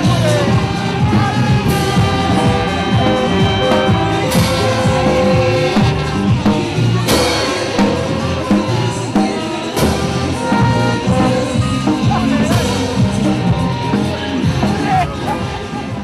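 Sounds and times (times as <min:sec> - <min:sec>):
brass band playing a march: 0:00.0 - 0:15.5
bass drum beat: 0:00.0 - 0:16.0
cymbal crashes: 0:01.7 - 0:13.4.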